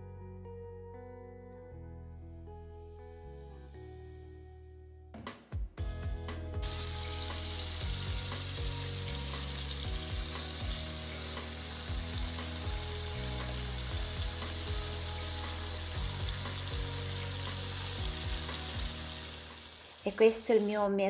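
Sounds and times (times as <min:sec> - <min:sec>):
tomatoes sizzling in oil: 0:06.6 - 0:21.0.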